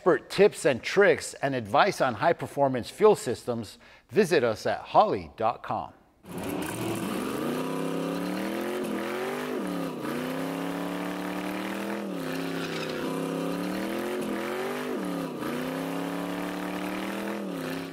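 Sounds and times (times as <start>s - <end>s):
tire spinning on pavement: 6.2s - 17.9s
car engine revving: 6.3s - 17.9s.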